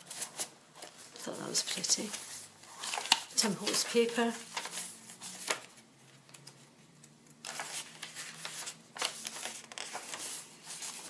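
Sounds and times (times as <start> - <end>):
paper rustling and flapping: 0.0 - 6.7, 7.3 - 11.0.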